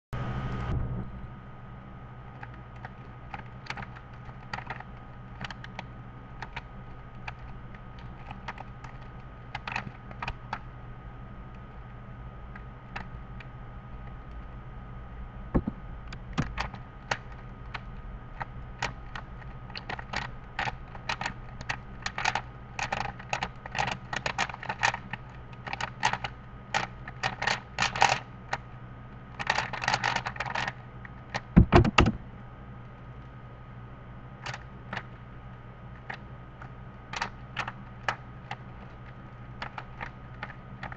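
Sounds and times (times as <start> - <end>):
steady low hum: 0.2 - 40.9
louder knocks: 15.6 - 15.8, 31.6 - 32.2.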